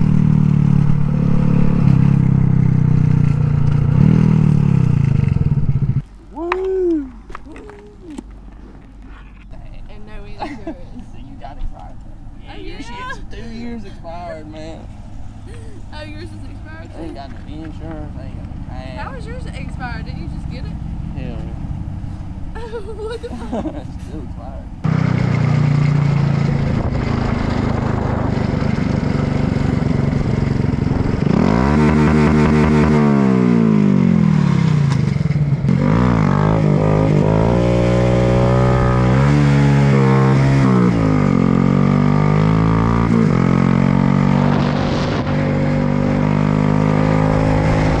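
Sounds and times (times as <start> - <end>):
motorcycle engine revving: 0.0 - 6.0, 13.6 - 22.5, 23.6 - 48.0.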